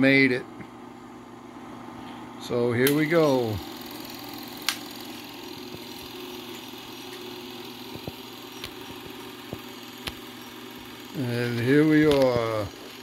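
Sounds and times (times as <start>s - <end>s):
film projector motor hum: 0.7s - 13.0s
faint projector clicks: 2.8s - 3.1s, 4.6s - 6.1s, 7.0s - 10.3s, 11.4s - 12.6s.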